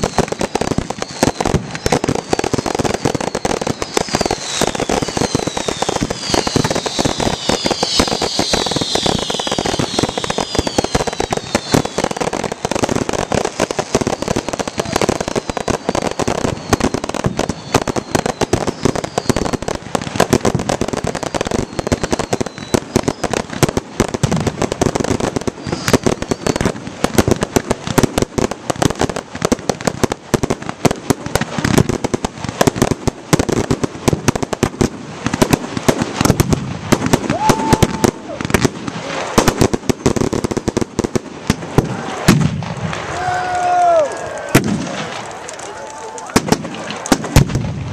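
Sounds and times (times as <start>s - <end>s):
falling firework whistles: 0.0s - 23.6s, 25.2s - 26.8s, 37.0s - 39.6s
fireworks bangs and crackling: 0.0s - 47.9s.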